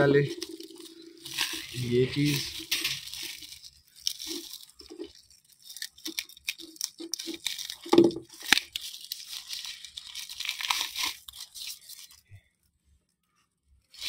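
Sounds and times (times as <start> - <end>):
plastic wrapping crinkling and tearing: 0.0 - 12.8.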